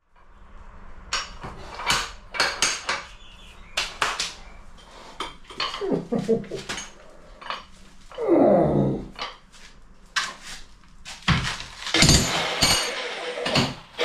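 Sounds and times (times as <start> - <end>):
metal tools clinking: 5.4 - 7.8, 11.8 - 13.8.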